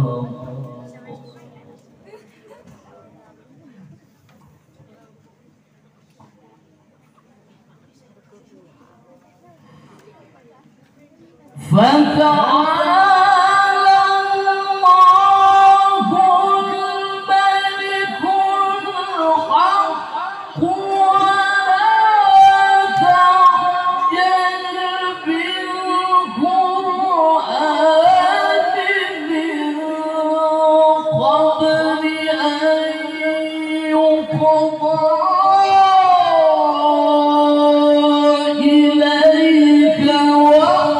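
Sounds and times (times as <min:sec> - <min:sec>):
man reciting melodically: 0:00.0 - 0:01.3, 0:11.6 - 0:40.9.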